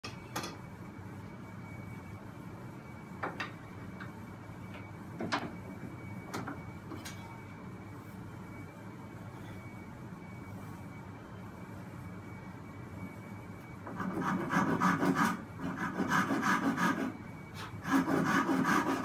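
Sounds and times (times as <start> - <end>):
faint high whine: 0.0 - 19.0
steady low hum: 0.0 - 19.0.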